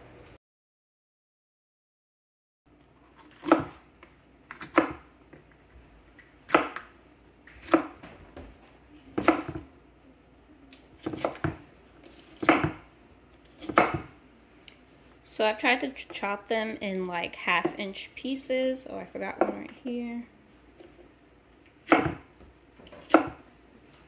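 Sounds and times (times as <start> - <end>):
knife chopping on wooden board: 3.2 - 3.8, 4.5 - 5.1, 6.5 - 6.9, 7.5 - 8.0, 9.2 - 9.7, 11.0 - 11.6, 12.2 - 12.8, 13.5 - 14.2, 21.9 - 22.3, 22.9 - 23.4.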